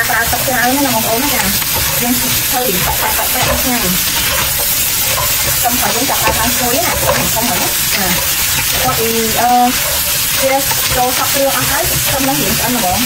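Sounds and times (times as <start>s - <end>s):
crab sizzling in hot oil: 0.0s - 13.0s
spatula scraping a wok: 0.0s - 13.0s.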